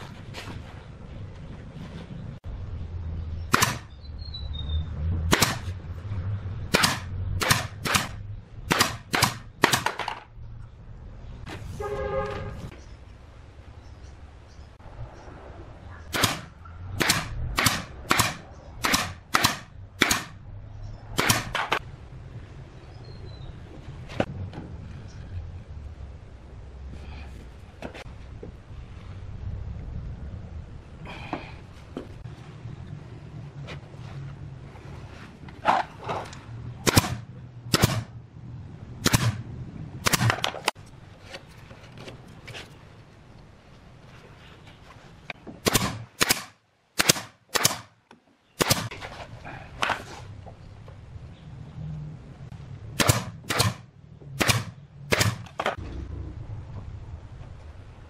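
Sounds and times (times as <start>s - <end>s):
nail gun firing into wood: 3.5s - 3.9s, 5.3s - 5.7s, 6.7s - 10.2s, 16.1s - 20.4s, 21.2s - 21.8s, 36.8s - 38.1s, 39.0s - 39.4s, 40.0s - 40.7s, 45.6s - 47.9s, 48.6s - 48.9s, 53.0s - 53.8s, 54.4s - 55.8s.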